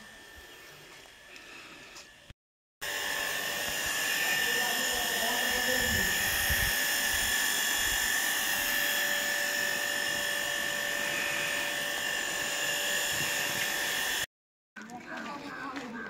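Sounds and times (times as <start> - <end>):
high-pitched whine: 2.8 - 14.3.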